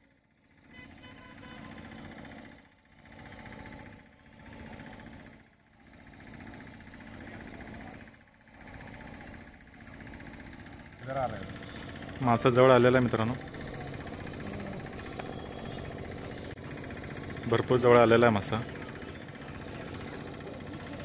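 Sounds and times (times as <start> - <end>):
fishing reel whirring: 13.6 - 16.6.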